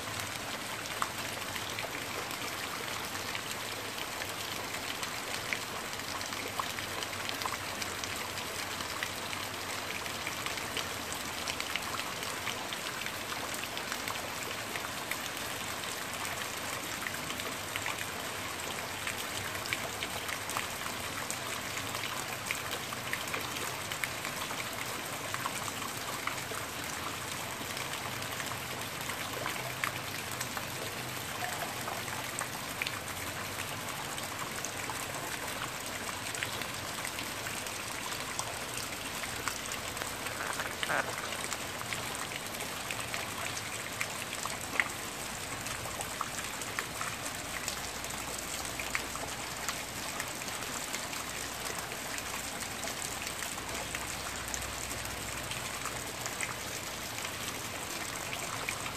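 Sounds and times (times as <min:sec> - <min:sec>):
rain falling on plants: 0:00.0 - 0:58.9
raindrops ticking: 0:34.8 - 0:49.0.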